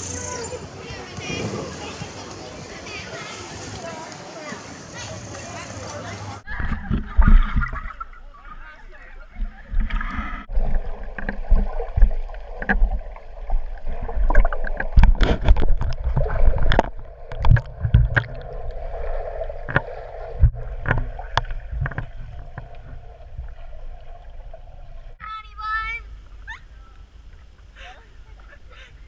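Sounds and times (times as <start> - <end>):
muffled underwater water noise: 0.6 - 29.0.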